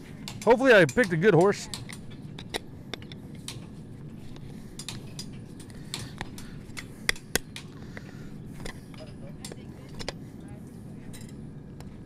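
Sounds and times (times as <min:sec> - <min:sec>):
metal tools clicking on horseshoe: 0:00.2 - 0:03.6.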